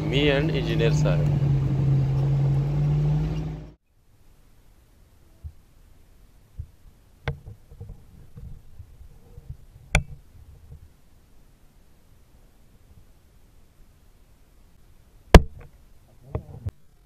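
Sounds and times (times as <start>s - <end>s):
car engine idling: 0.0s - 3.8s.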